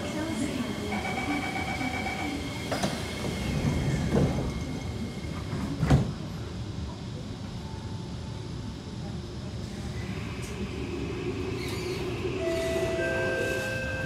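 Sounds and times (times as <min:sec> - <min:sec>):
steady high door warning tone: 0:00.9 - 0:02.5, 0:12.3 - 0:14.0
train doors shutting with knock: 0:02.6 - 0:06.4.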